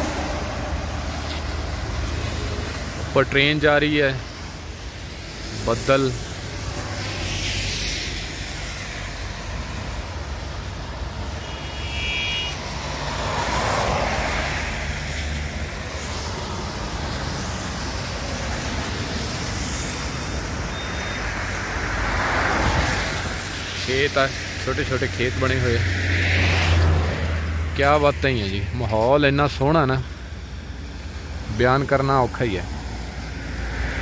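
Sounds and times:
car road and tyre noise: 0:00.0 - 0:34.0
high horn toot: 0:11.3 - 0:12.7.

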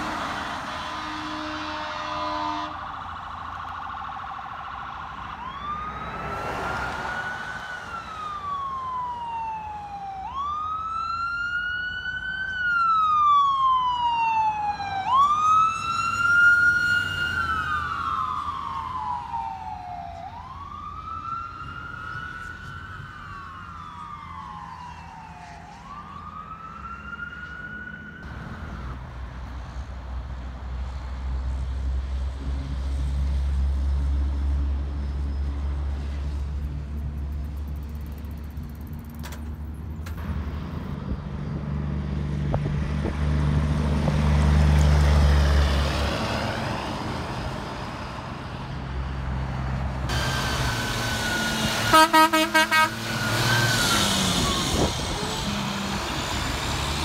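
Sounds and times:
ambulance siren wailing: 0:00.0 - 0:29.0, 0:50.1 - 0:57.0.

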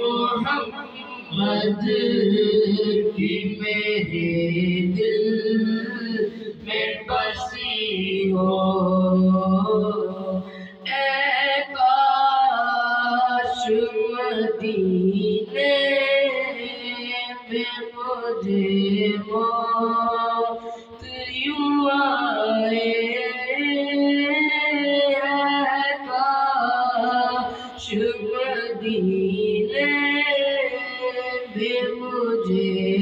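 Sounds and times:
boy singing into a microphone: 0:00.0 - 0:33.0
singer breathing: 0:06.3 - 0:06.6, 0:10.4 - 0:10.9, 0:20.6 - 0:21.0, 0:27.5 - 0:27.8.

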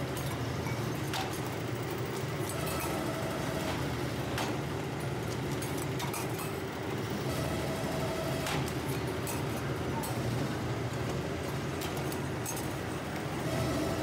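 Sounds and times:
press machinery humming: 0:06.6 - 0:14.0.

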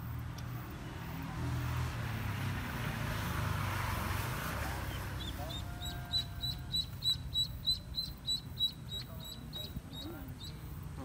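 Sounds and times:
vehicle engine hum passing by: 0:00.0 - 0:11.0.

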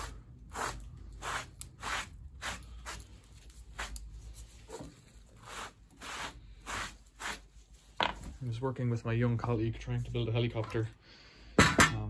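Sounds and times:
hand sweeping wood shavings: 0:00.0 - 0:07.9.

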